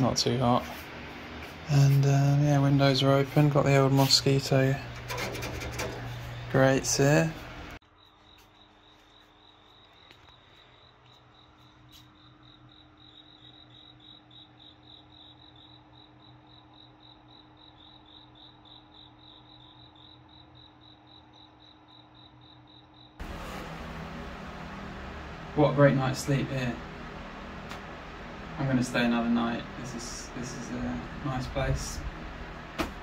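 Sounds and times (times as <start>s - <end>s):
faint steady hum: 0.0s - 33.0s
cricket chirping: 7.8s - 23.2s.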